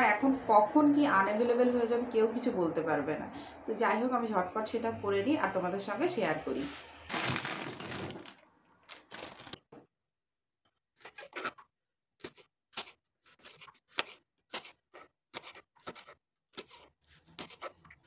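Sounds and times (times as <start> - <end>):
knife slicing green beans: 12.2 - 17.8.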